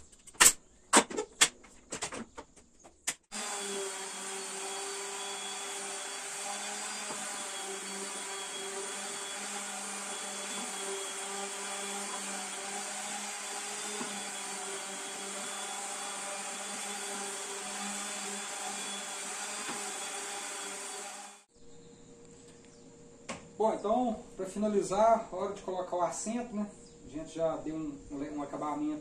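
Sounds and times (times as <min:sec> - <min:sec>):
orbital sander running: 0:03.3 - 0:21.5.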